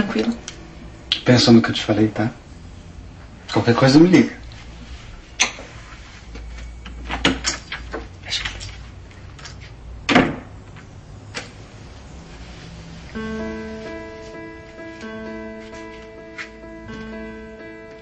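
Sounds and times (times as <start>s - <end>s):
acoustic guitar music: 0.0s - 3.2s, 13.1s - 18.0s.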